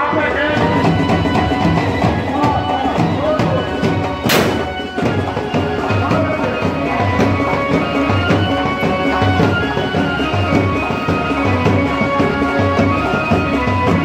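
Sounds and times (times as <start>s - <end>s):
drumming: 0.8s - 6.6s.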